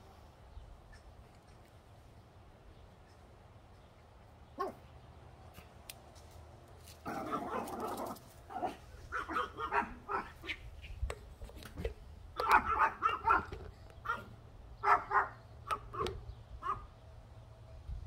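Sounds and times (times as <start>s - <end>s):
small dogs barking: 4.6s - 4.9s, 7.0s - 10.7s, 11.8s - 16.9s.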